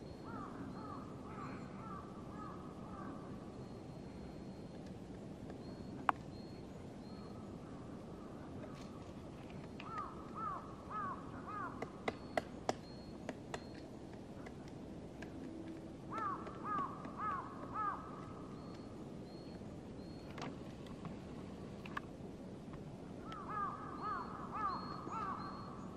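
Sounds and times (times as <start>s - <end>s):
woodpecker knocking on tree: 16.1s - 18.3s.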